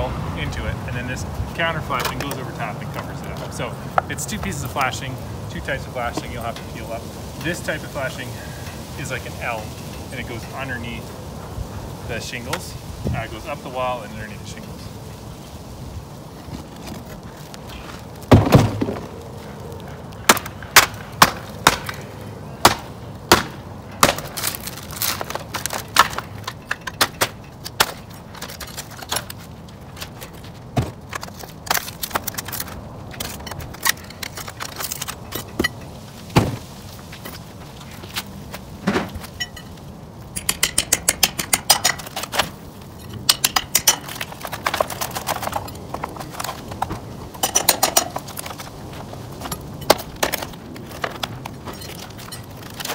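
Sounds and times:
heavy thump: 18.3s - 19.1s, 36.3s - 36.7s
metal knocks and clanks: 40.4s - 48.7s.

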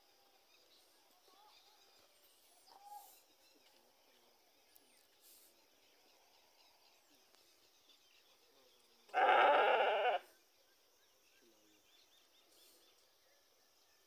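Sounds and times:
calf bawling: 9.2s - 10.2s.

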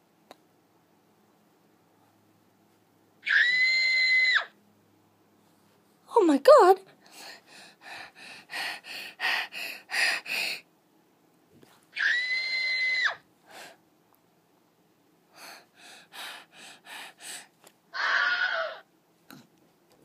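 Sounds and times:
child panting: 7.0s - 10.7s, 13.5s - 13.8s, 15.3s - 17.6s.

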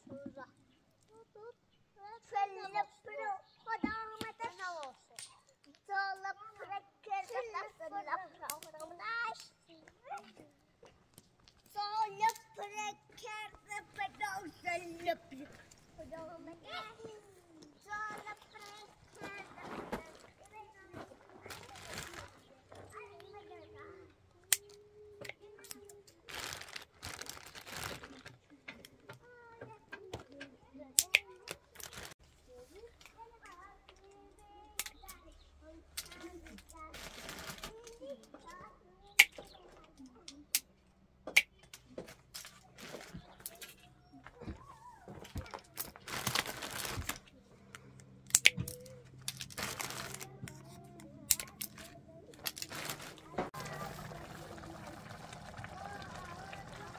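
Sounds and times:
plastic bag crinkling: 18.2s - 22.7s, 26.0s - 28.5s, 31.5s - 32.2s, 36.9s - 37.9s, 45.5s - 47.3s, 49.2s - 50.8s, 51.4s - 56.9s
tin snips snapping plastic: 31.0s - 31.3s, 48.3s - 48.9s.

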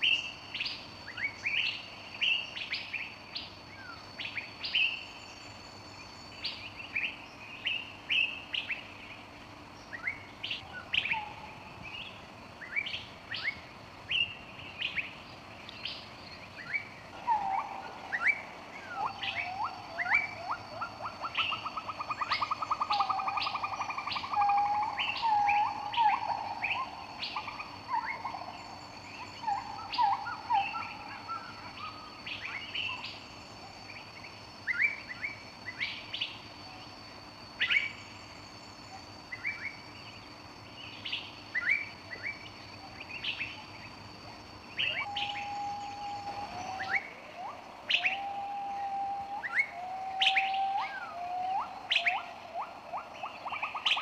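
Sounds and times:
birds chirping: 0.0s - 54.0s
faint steady high tone: 16.6s - 54.0s.

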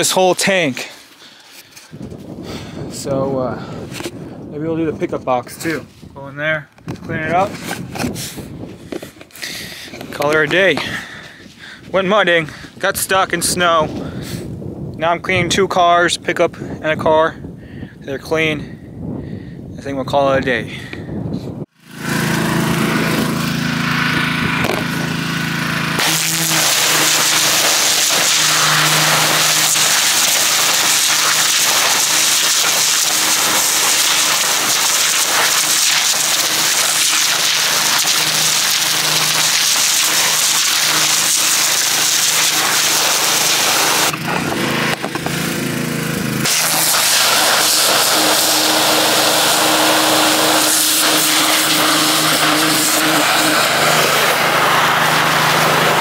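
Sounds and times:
motor hum: 21.8s - 56.0s
pressure washer spray hissing: 26.0s - 44.1s, 46.4s - 56.0s.

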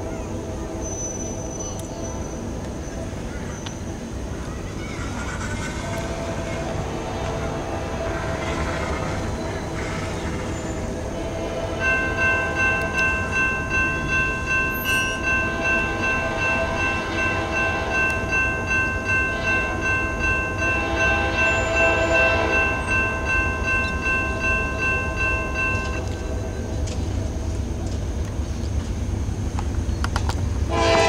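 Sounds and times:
train rumbling: 0.0s - 31.0s
locomotive horn blast: 5.7s - 13.0s, 15.4s - 18.2s, 20.6s - 22.9s, 30.7s - 31.0s.

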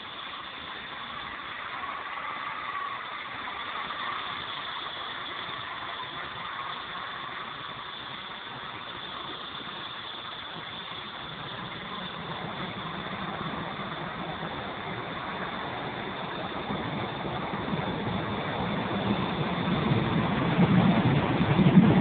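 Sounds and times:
rc helicopter rotor whine: 0.0s - 22.0s.

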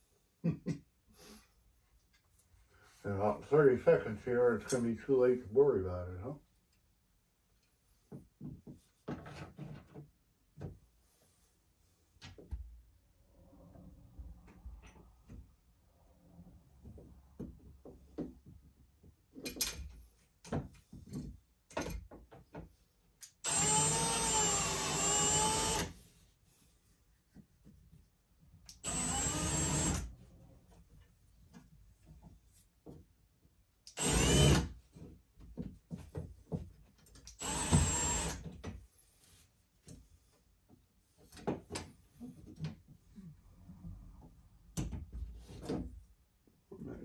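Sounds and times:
cordless drill driving screws: 23.4s - 25.9s, 28.8s - 30.1s, 33.9s - 34.7s, 37.3s - 38.4s.

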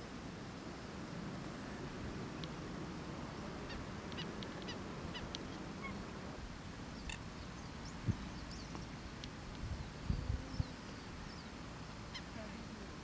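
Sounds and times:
geese calling faintly: 3.2s - 9.2s, 12.0s - 13.0s.

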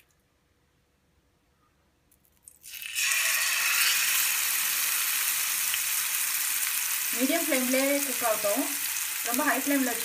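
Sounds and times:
fish sizzling in hot oil: 2.6s - 10.0s.

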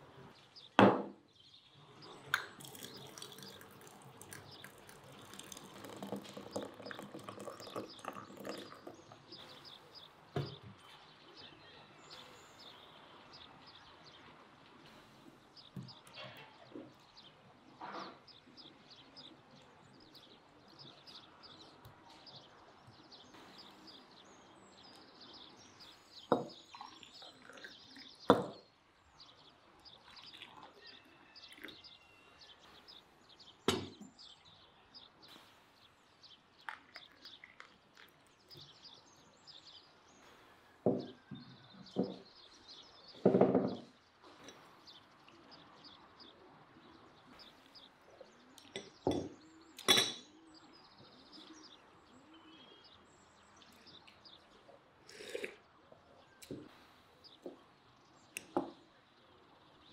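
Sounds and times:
faint birdsong: 0.0s - 59.9s
glasses and dishes clinking on table: 5.2s - 8.9s, 48.7s - 50.3s.

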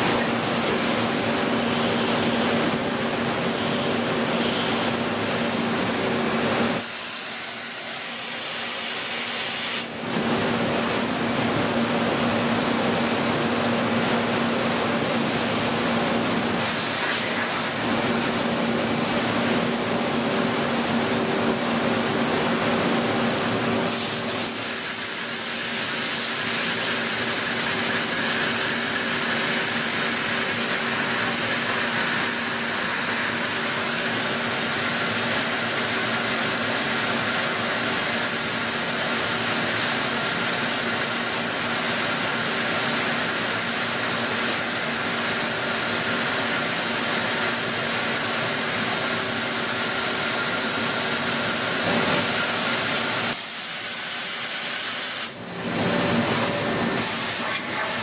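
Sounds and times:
coolant spray hiss: 6.8s - 9.9s, 51.2s - 55.4s, 57.0s - 58.0s.

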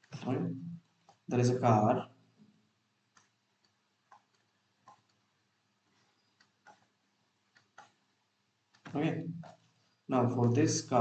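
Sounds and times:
stylus tapping on tablet: 3.1s - 5.2s.

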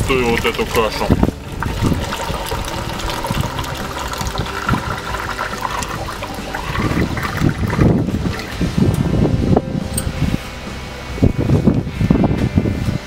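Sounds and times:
thick mash pouring into metal bucket: 0.1s - 8.5s.

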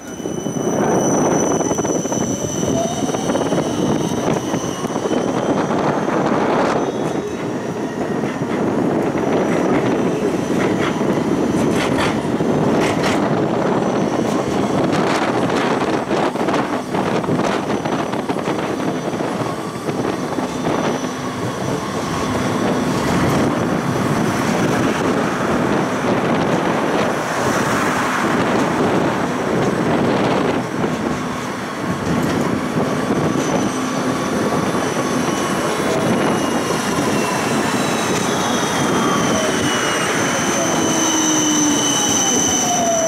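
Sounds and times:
high-pitched wheel squeal: 0.0s - 8.3s, 33.2s - 43.0s
tram wheels rumbling on track: 0.0s - 43.0s.

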